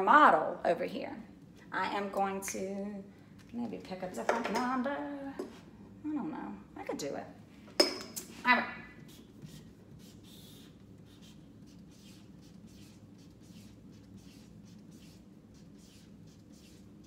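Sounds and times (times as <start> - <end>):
marker scratching on paper: 9.0 - 17.0.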